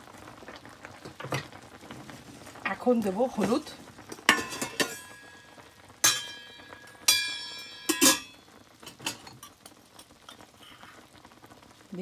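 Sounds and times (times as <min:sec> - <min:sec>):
metal utensils clinking: 0:04.1 - 0:05.4, 0:06.0 - 0:10.4.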